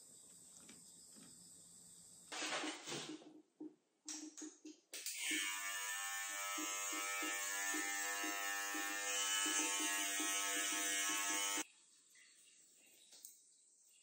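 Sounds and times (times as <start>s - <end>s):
small electric motor buzzing: 5.2s - 11.6s.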